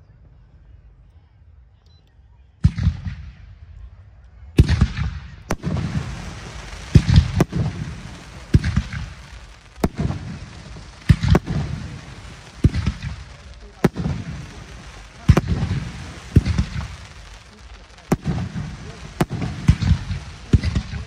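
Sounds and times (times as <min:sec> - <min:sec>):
firework shells bursting: 0:05.5 - 0:21.0.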